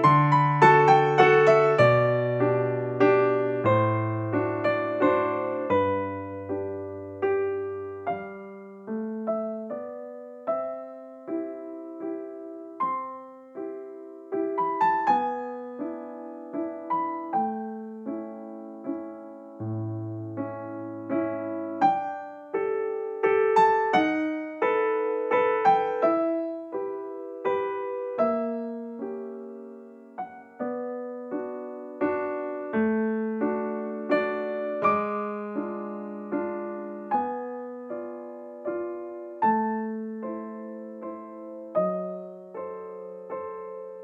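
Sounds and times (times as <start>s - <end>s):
slow piano melody: 0.0s - 44.0s.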